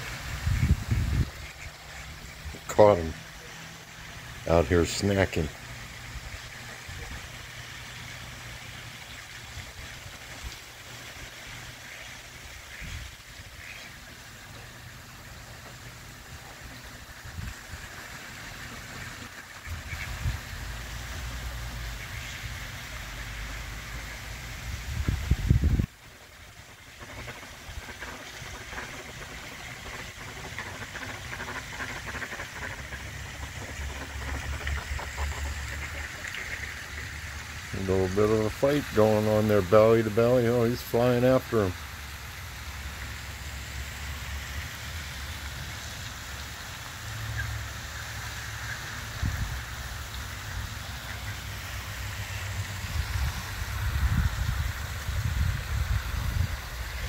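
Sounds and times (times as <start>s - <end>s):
constant low hum: 0.0s - 57.0s
faint hiss: 0.0s - 57.0s
ducks pecking clicks: 26.7s - 37.1s.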